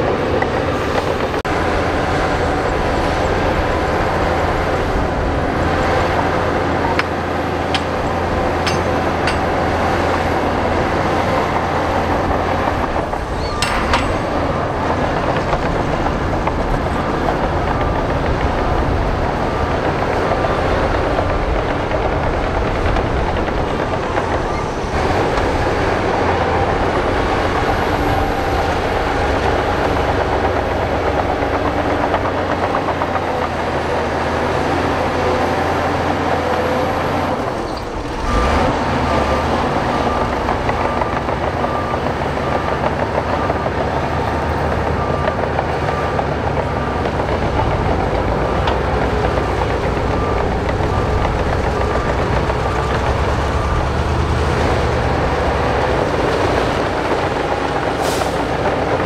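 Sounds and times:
diesel machinery running: 0.0s - 59.0s
reversing alarm beeping: 1.8s - 21.9s, 37.2s - 59.0s.

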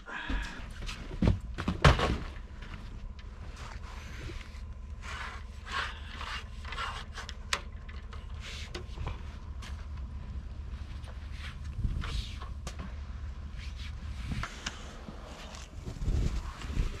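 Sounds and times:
low rumble: 7.4s - 17.0s.

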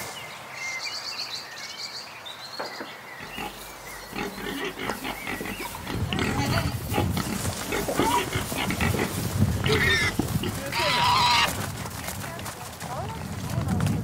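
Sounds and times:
pigs grunting: 3.2s - 11.6s.

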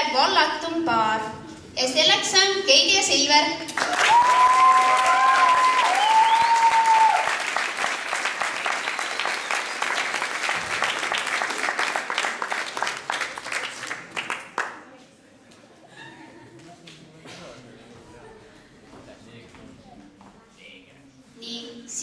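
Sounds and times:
audience applause: 3.8s - 14.8s.

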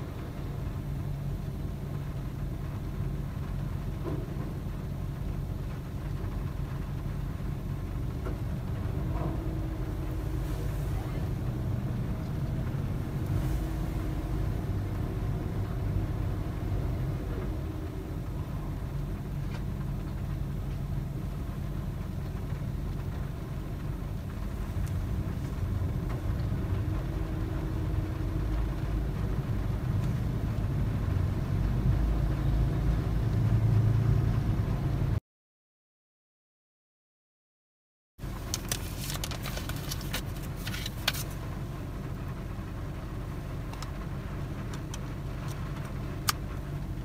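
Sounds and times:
car engine and road noise: 0.0s - 35.2s, 38.2s - 47.0s.

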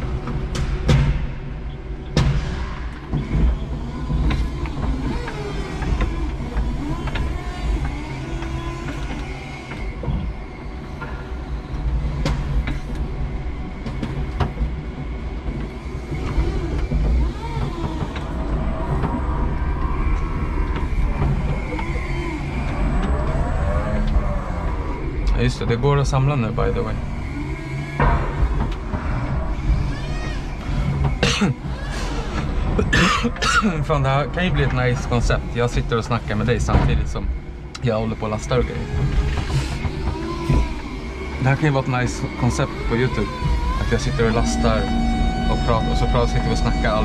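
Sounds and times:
sharp clicks and knocks: 0.0s - 24.3s, 25.2s - 47.0s
forklift electric motors whining: 0.0s - 47.0s
steady low hum: 0.0s - 47.0s.

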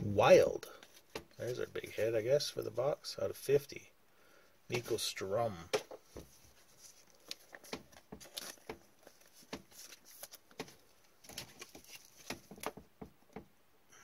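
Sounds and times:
trading cards shuffled: 5.8s - 12.8s.

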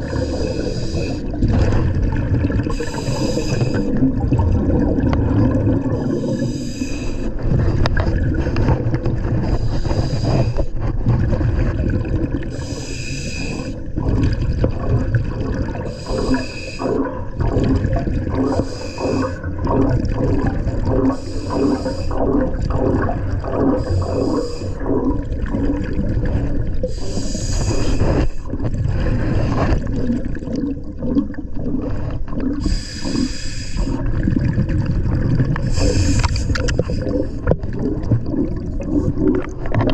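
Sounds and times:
diver breathing through regulator: 0.0s - 1.4s, 2.6s - 4.1s, 6.0s - 7.9s, 8.6s - 11.0s, 12.5s - 14.0s, 15.8s - 19.8s, 20.7s - 25.2s, 26.8s - 29.9s, 32.6s - 34.1s, 35.6s - 37.5s
gurgling exhaust bubbles: 0.0s - 39.9s.

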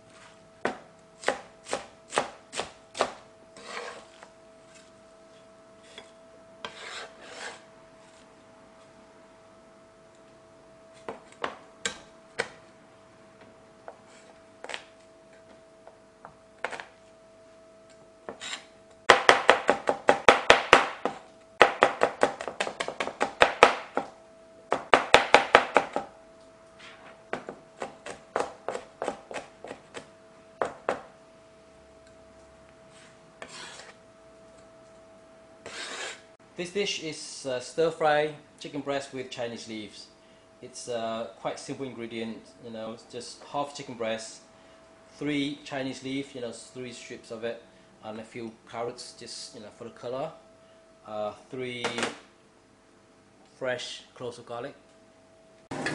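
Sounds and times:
faint steady hum: 0.0s - 55.9s
cleaver chopping on plastic board: 19.1s - 24.1s, 24.7s - 26.1s.

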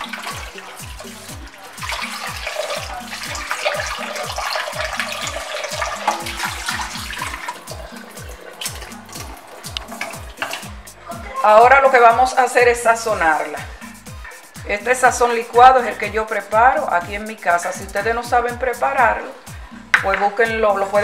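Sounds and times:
tap water pouring into bowl: 0.0s - 10.9s
hands rinsing meat splashing: 0.0s - 11.2s.

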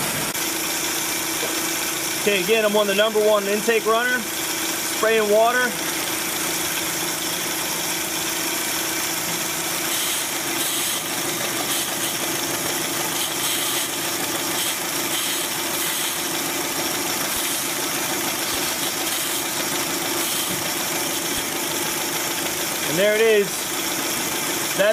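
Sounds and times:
car engine idling roughly: 0.0s - 24.9s.

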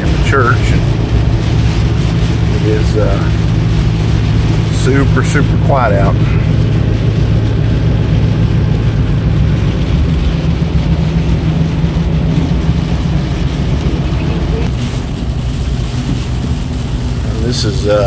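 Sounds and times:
low engine hum: 0.0s - 18.0s
tyres on wet road: 0.0s - 18.0s.

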